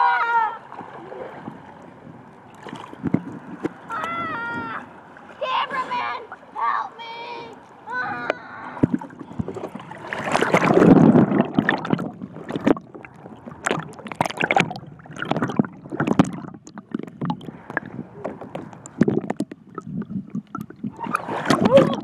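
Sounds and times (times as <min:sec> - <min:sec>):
pool water splashing: 0:00.0 - 0:22.0
water popping over microphone: 0:02.5 - 0:04.9, 0:08.0 - 0:22.0.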